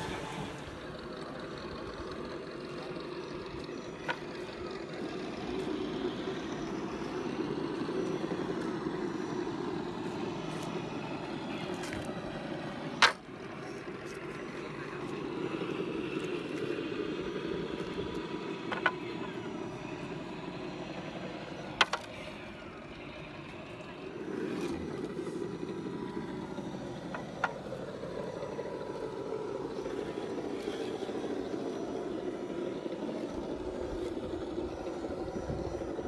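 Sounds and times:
toy truck motor whirring: 0:00.0 - 0:22.4.

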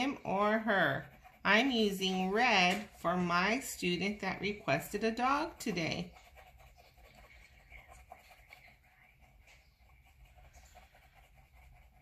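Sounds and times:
crayon scratching on paper: 0:00.0 - 0:12.0.

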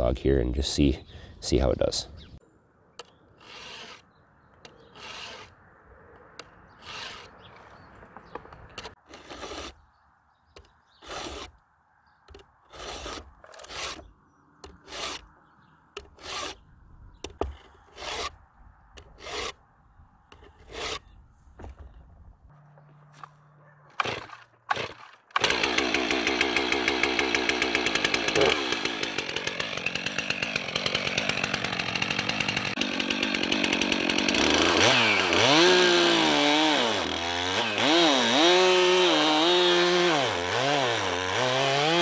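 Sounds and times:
file rasping across saw chain: 0:03.4 - 0:04.0, 0:04.7 - 0:05.5, 0:06.8 - 0:07.3, 0:08.8 - 0:09.8, 0:11.0 - 0:11.5, 0:12.7 - 0:14.1, 0:14.7 - 0:15.3, 0:16.0 - 0:16.6, 0:17.4 - 0:18.4, 0:19.0 - 0:19.6, 0:20.4 - 0:21.1.

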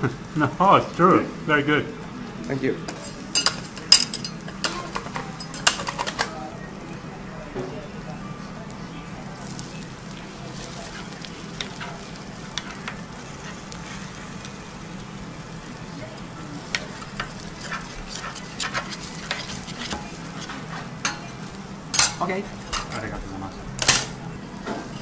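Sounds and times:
food sizzling on griddle: 0:00.0 - 0:25.0
metal spatulas scraping and tapping: 0:02.9 - 0:06.3, 0:10.9 - 0:13.6, 0:16.7 - 0:23.0.

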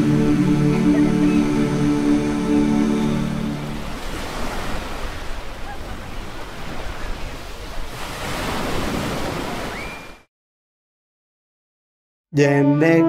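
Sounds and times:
music: 0:00.0 - 0:03.8, 0:12.3 - 0:13.0
surf washing onto shore: 0:00.0 - 0:10.2.

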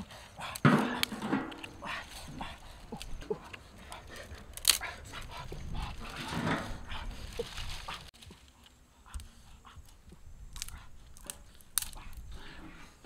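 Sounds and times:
brushwood rustling: 0:00.0 - 0:13.0
dry sticks snapping: 0:00.0 - 0:13.0.

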